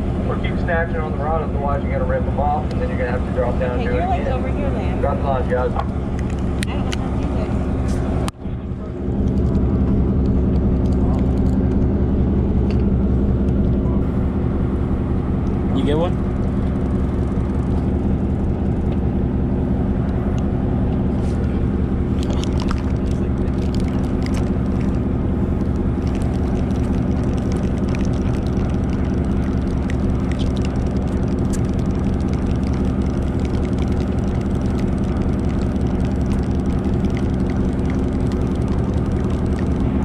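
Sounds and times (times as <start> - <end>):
boat engine humming: 0.0 - 40.0
faint clicks: 25.6 - 39.9.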